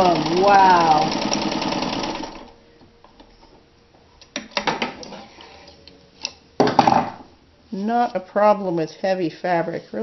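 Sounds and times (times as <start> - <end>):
sewing machine stitching: 0.0 - 2.5.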